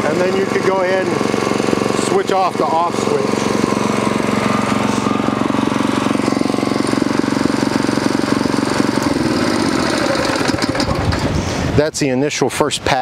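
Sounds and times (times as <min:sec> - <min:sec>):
tiller gas engine running: 0:00.0 - 0:11.8.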